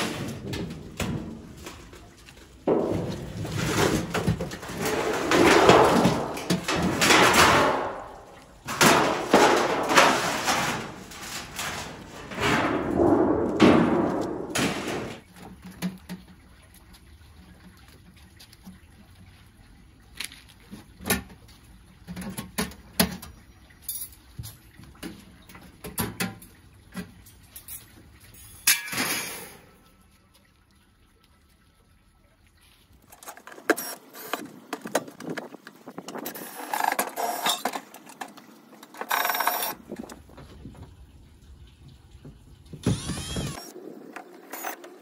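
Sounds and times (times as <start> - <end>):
rustling and crinkling: 0.0 - 17.1.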